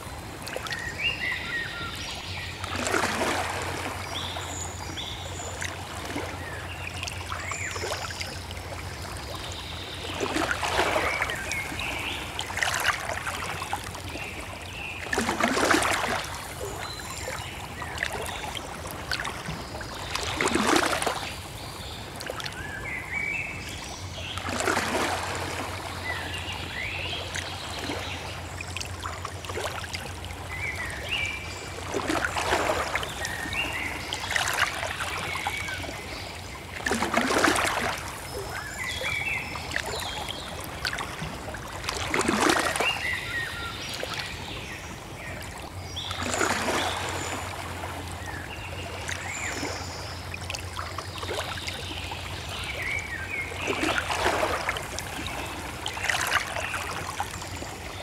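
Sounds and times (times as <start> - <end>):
water lapping and splashing: 0.0 - 58.0.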